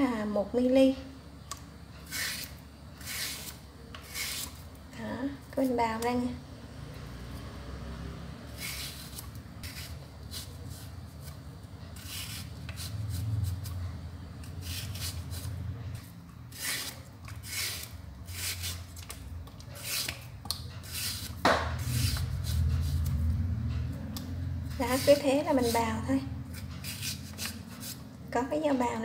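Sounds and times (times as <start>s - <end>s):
peeler knife scraping banana: 2.0s - 4.7s, 8.5s - 13.8s, 14.4s - 23.3s, 24.7s - 28.1s
sharp knock: 21.4s - 21.8s.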